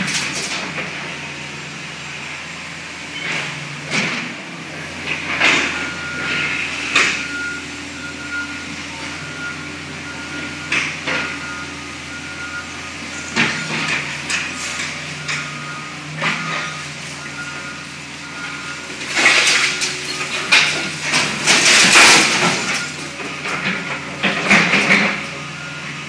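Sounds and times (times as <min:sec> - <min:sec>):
crashes of falling debris: 0:00.0 - 0:00.8, 0:18.9 - 0:25.3
diesel engine running: 0:00.0 - 0:26.0
reversing alarm beeping: 0:05.4 - 0:26.0.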